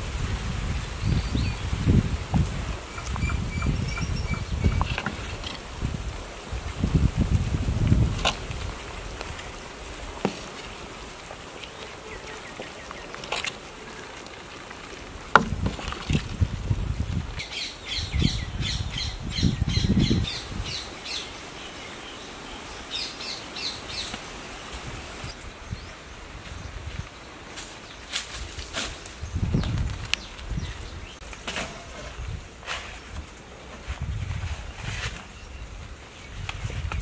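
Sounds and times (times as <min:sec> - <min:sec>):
bird chirping: 0:02.9 - 0:05.0.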